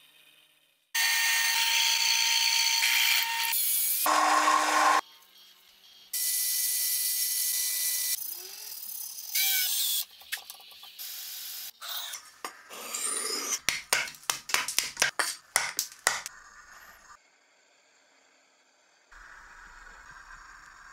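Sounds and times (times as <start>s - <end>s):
cleaver chopping wooden block: 13.6s - 16.3s.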